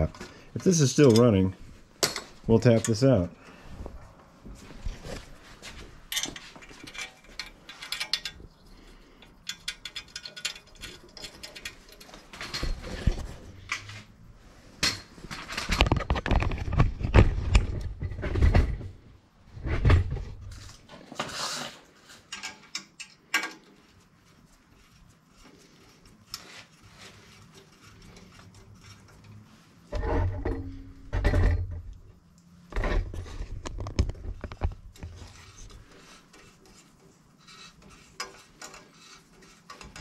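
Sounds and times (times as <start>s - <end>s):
metal tools clinking and clanking: 0.0s - 3.2s, 6.1s - 8.5s, 9.2s - 14.0s.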